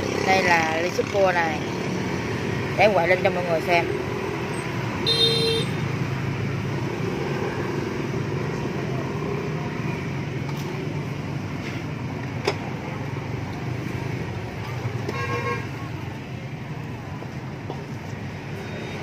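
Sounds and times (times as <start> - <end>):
street traffic rumble: 0.0 - 19.0
car horn toot: 5.0 - 5.8, 15.1 - 15.7.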